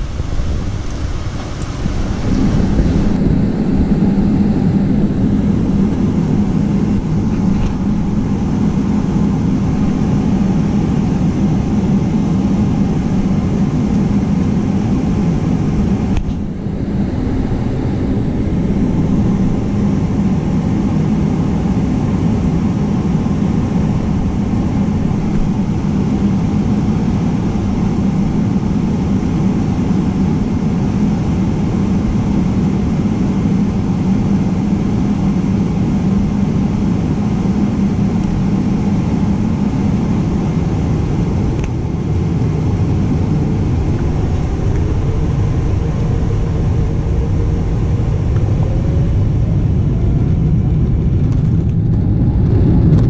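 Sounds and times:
jet engine hum and rushing: 0.0 - 53.0.

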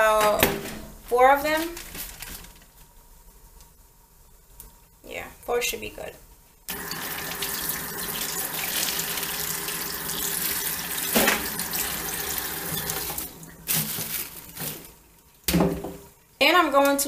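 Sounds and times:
faucet running into steel sink: 6.7 - 13.5
water splashing off vegetables: 6.7 - 14.3.

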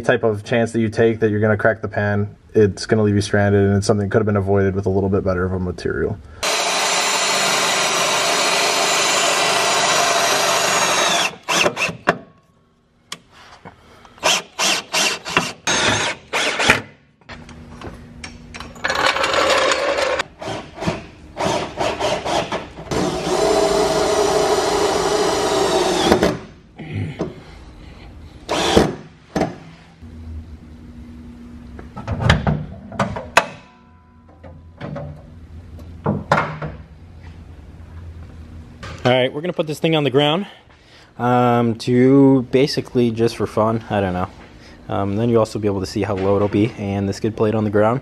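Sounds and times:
cordless drill motor whine: 6.4 - 11.9, 22.9 - 26.3, 28.5 - 28.8
drill trigger bursts: 6.4 - 12.0, 14.2 - 16.8, 21.4 - 26.4, 28.5 - 29.0.

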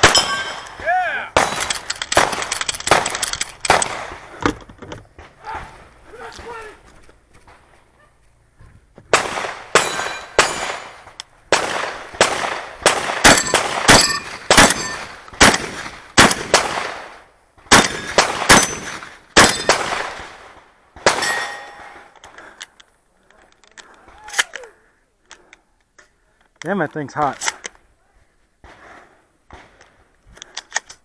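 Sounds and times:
steel target ringing: 0.0 - 0.8, 9.8 - 10.7, 21.1 - 22.0
shotgun blasts: 0.0 - 4.4, 9.1 - 22.0.

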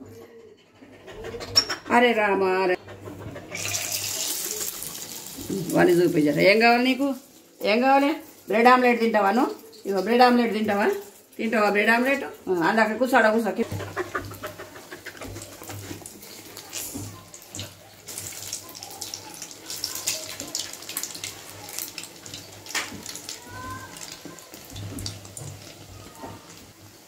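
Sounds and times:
bread deep-frying in oil: 3.0 - 27.0
crackles and pops of oil: 20.3 - 23.4.

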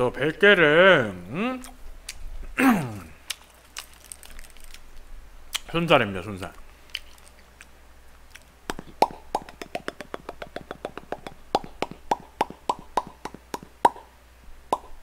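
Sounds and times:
wet chewing and lip-smacking: 3.2 - 5.7, 6.9 - 14.0.

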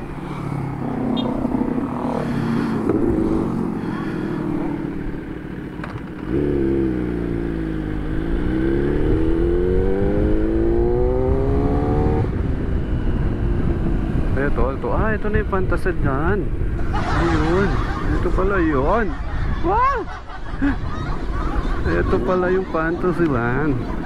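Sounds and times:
motorcycle engine accelerating: 0.0 - 14.7
motorcycles passing: 0.0 - 24.0.

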